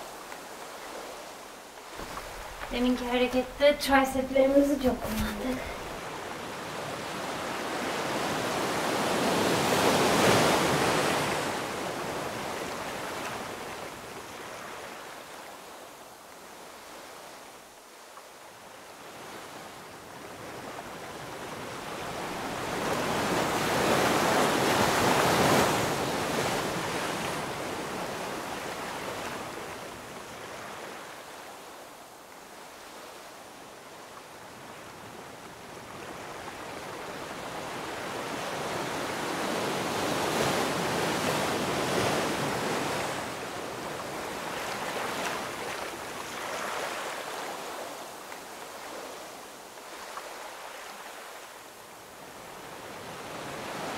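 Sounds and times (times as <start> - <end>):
rushing surf-like noise: 1.9 - 6.7.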